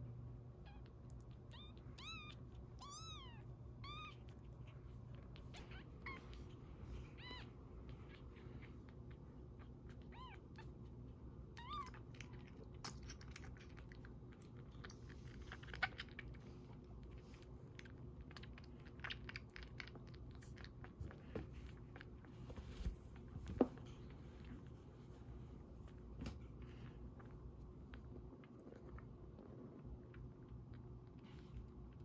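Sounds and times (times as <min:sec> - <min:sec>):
kitten suckling wet clicks: 0:11.6 - 0:22.2.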